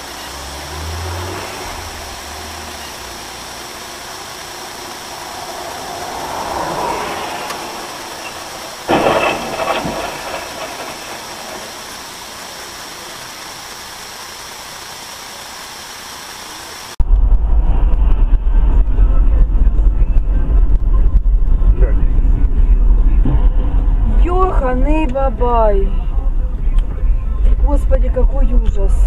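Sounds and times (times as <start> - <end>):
car road and engine noise: 0.0 - 29.0
loud impact: 4.8 - 13.4.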